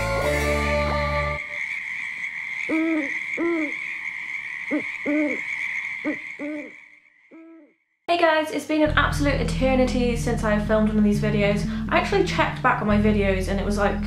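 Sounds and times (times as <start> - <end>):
music track: 0.0 - 1.4, 8.7 - 14.0
owl hooting: 1.4 - 7.8.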